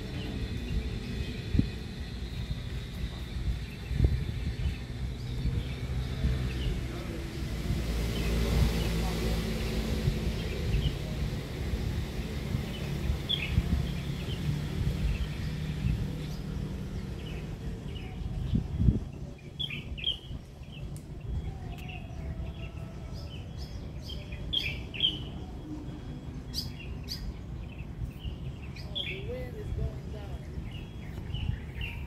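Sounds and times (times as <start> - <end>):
low rumble: 0.0 - 24.4
small birds chirping: 0.0 - 32.0.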